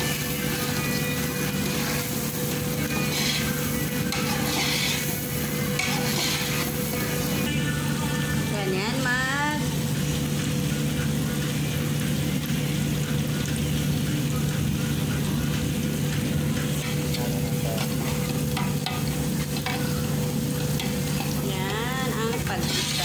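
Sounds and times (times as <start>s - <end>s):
onions sizzling in hot oil: 0.0s - 23.0s
spatula scraping a pot: 2.8s - 7.1s, 22.3s - 23.0s.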